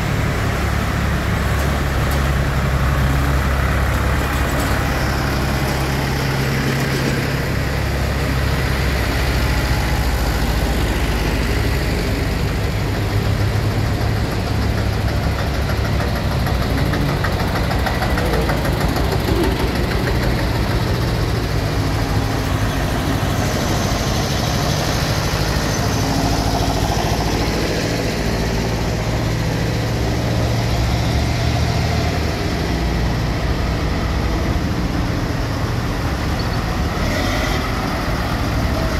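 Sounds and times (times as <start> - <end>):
tractor engines passing by: 0.0 - 38.9.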